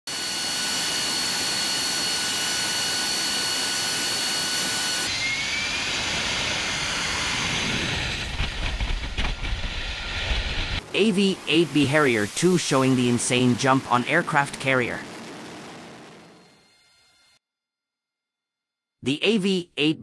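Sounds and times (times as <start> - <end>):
jet engine rush: 0.1 - 16.8
high turbine whine: 0.1 - 17.4
deep rumble: 5.9 - 11.5.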